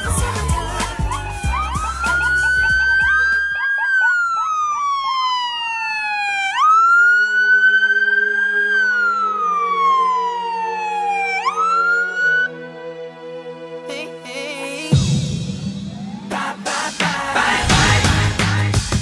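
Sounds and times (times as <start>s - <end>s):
music: 0.0s - 3.5s, 9.9s - 19.0s
police siren wailing: 0.0s - 12.8s, 15.8s - 16.7s.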